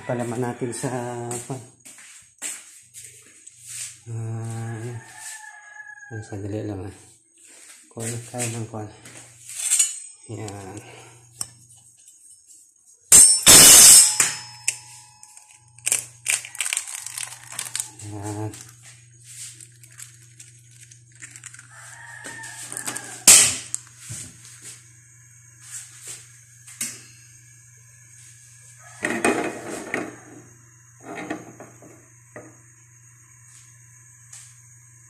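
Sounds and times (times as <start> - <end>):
egg frying in oil: 15.8 - 18.0, 19.5 - 23.9.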